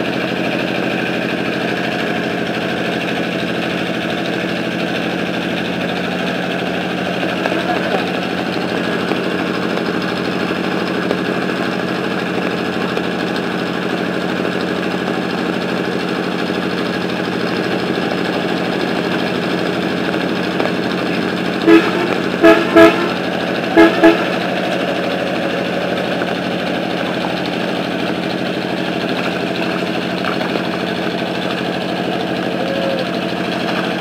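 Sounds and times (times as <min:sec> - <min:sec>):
engine drone: 0:00.0 - 0:34.0
vehicle horn tooting: 0:21.6 - 0:25.7.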